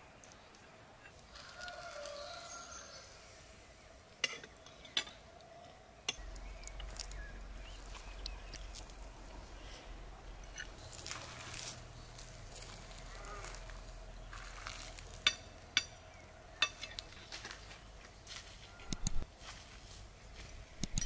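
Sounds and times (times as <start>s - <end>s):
rooster crowing: 1.3s - 3.2s.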